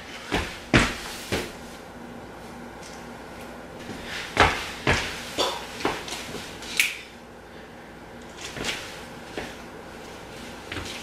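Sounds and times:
footsteps on hardwood floor: 0:00.3 - 0:01.6, 0:03.8 - 0:05.2, 0:05.8 - 0:06.5.

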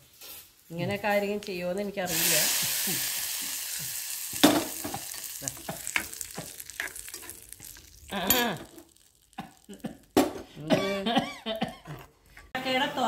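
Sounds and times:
hot oil tempering sizzling: 0:00.0 - 0:10.4
metal spoon stirring in pan: 0:00.1 - 0:10.4.

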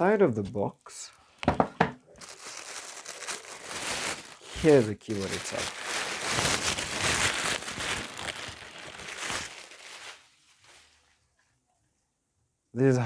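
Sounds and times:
wrapper crinkling: 0:02.2 - 0:11.1.

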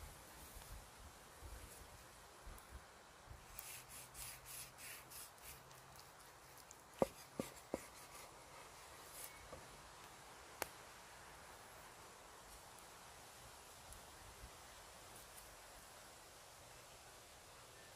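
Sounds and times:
knife tapping wooden board: 0:07.0 - 0:08.0.

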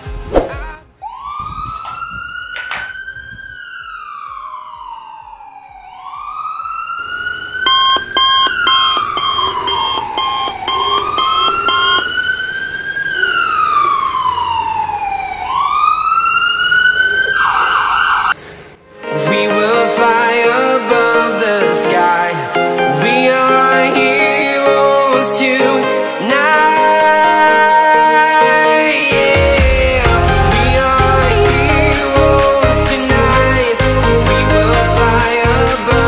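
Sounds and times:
emergency vehicle siren wailing: 0:01.0 - 0:18.4
fast electronic beeping: 0:07.6 - 0:12.4.

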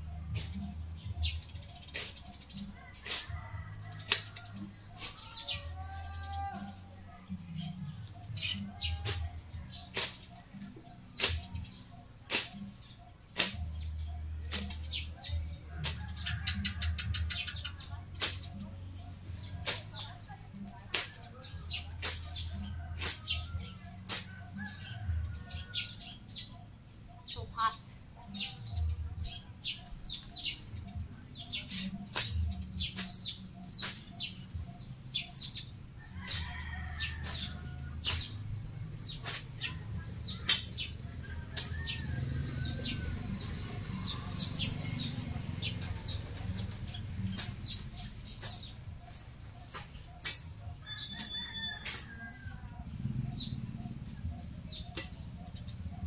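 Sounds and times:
birds chirping: 0:00.0 - 0:56.0
machete chopping grass: 0:01.9 - 0:05.5, 0:09.9 - 0:12.8, 0:13.4 - 0:16.2, 0:18.2 - 0:18.6, 0:19.6 - 0:20.0, 0:20.9 - 0:21.3, 0:22.0 - 0:23.5, 0:24.1 - 0:24.8, 0:32.1 - 0:35.5, 0:37.2 - 0:40.9, 0:46.6 - 0:52.1, 0:54.6 - 0:55.2.

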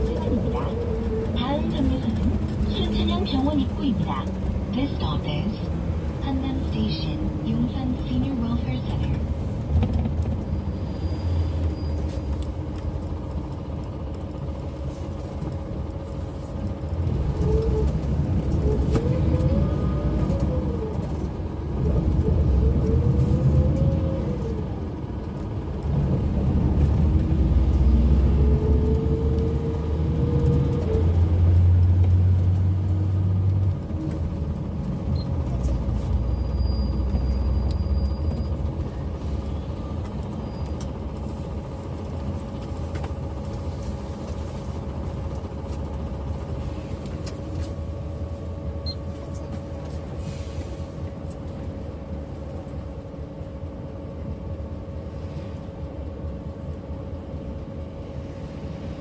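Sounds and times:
heavy low hum: 0:00.0 - 0:10.7
bus engine rumble: 0:00.0 - 0:59.0.

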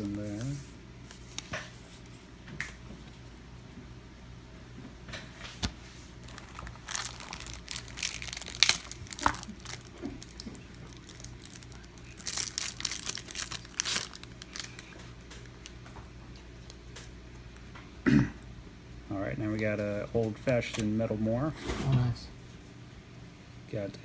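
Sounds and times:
foil wrapper crinkling and tearing: 0:06.2 - 0:15.8.

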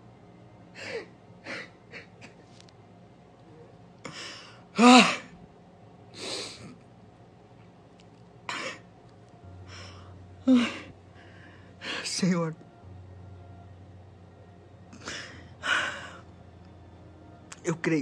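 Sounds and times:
man crying: 0:10.4 - 0:11.0.

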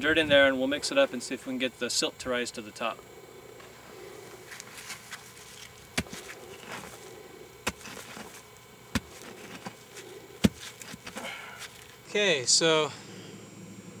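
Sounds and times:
faint scraping: 0:03.5 - 0:12.0
stone knocking into clay soil: 0:05.9 - 0:07.0, 0:07.6 - 0:11.8.

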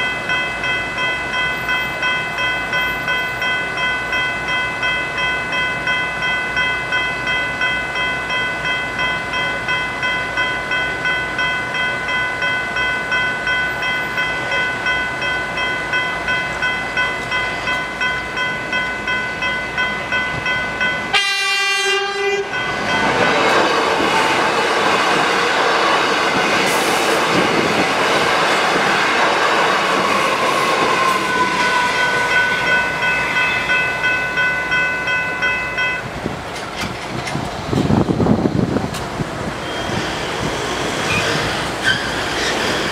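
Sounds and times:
level crossing bells ringing: 0:00.0 - 0:36.2
train rail and wheel noise: 0:00.0 - 0:42.9
train horn: 0:21.1 - 0:22.6, 0:30.1 - 0:32.7.

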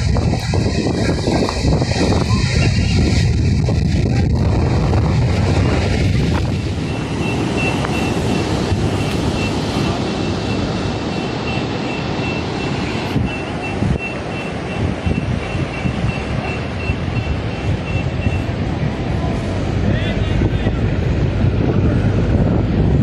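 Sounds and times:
wind on microphone: 0:00.0 - 0:23.0
reversing alarm beeping: 0:06.6 - 0:18.7.

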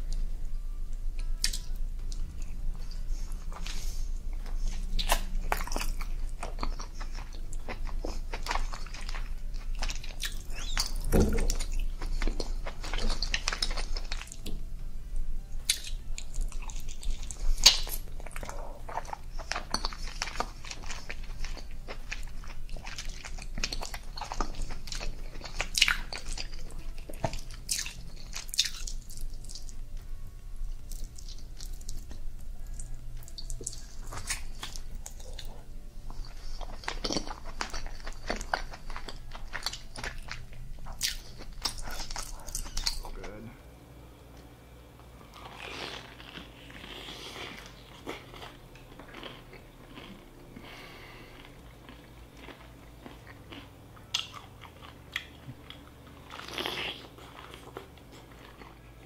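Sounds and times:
person chewing: 0:00.0 - 0:14.5, 0:15.6 - 0:43.5, 0:45.2 - 0:59.0.

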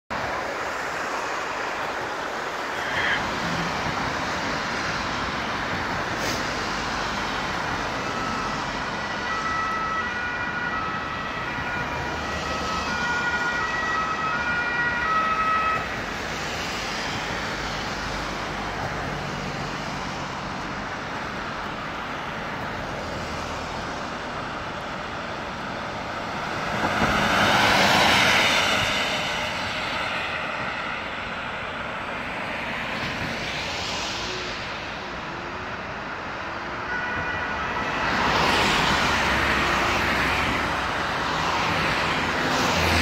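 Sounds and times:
passing road traffic: 0:00.1 - 0:43.0
ambulance two-tone siren: 0:07.2 - 0:17.7, 0:33.0 - 0:43.0.

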